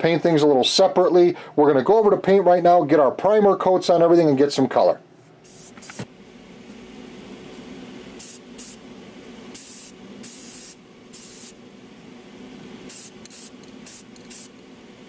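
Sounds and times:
steady low hum: 0.0 - 15.0
aerosol spray can hissing: 5.4 - 6.1, 8.2 - 8.8, 9.5 - 11.6, 12.9 - 14.6.

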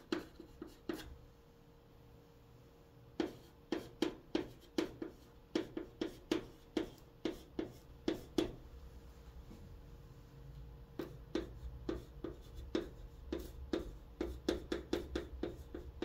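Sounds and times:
chalk tapping and scraping on chalkboard: 0.0 - 1.2, 3.2 - 8.6, 11.0 - 16.0.

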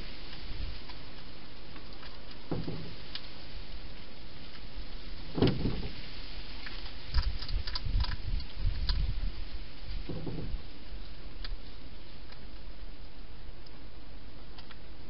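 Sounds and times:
steady hiss: 0.0 - 15.0
dull bump: 2.5 - 3.0, 10.1 - 10.6
small sharp clicks: 6.6 - 9.0, 14.5 - 14.8.

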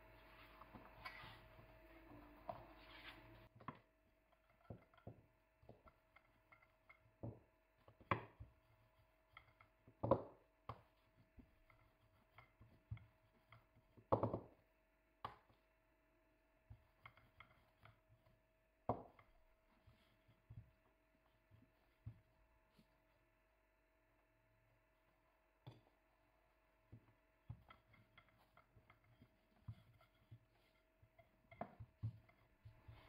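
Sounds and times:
rolling pin knocking on mat: 14.0 - 14.6.

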